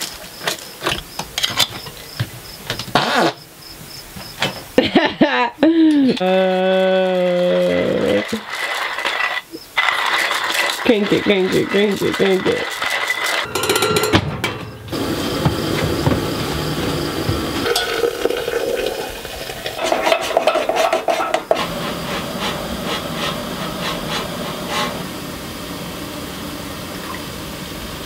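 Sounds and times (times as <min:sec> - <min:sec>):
hot water pouring: 0:07.2 - 0:13.5, 0:14.9 - 0:28.0
clinking and stirring in metal press: 0:08.0 - 0:21.8
coffee pouring into mug: 0:17.1 - 0:19.9.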